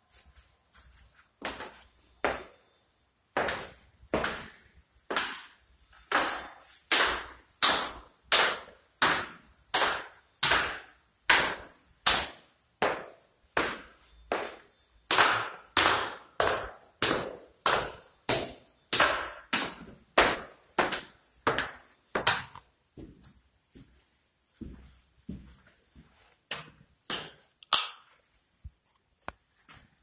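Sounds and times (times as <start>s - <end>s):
echoing footsteps on hard floor: 0.1s - 2.6s, 3.4s - 7.4s, 12.8s - 14.8s, 15.4s - 27.5s.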